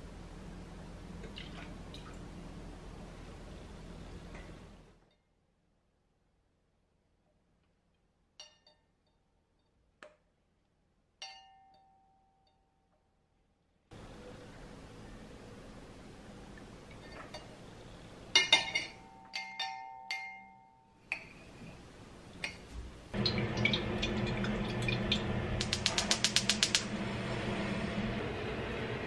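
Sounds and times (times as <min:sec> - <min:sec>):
metal spoon clinking glass jug: 0:18.3 - 0:21.4
igniter ticking: 0:23.2 - 0:27.0.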